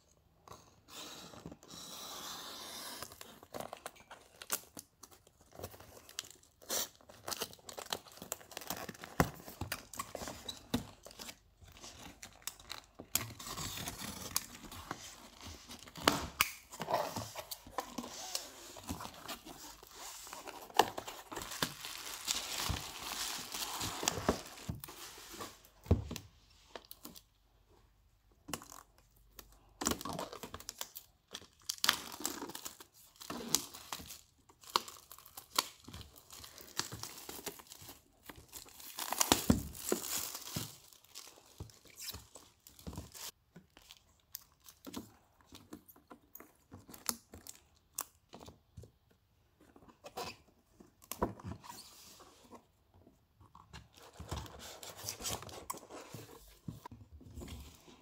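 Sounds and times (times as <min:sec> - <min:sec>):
plastic packaging crinkling: 0:17.2 - 0:24.8, 0:30.2 - 0:45.0.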